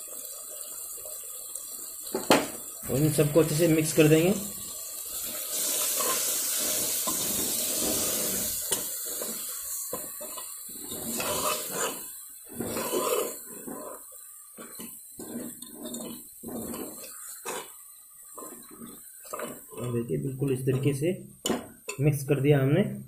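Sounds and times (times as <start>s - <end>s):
frying sizzle: 0.0s - 23.0s
ladle scraping metal pot: 5.5s - 22.1s.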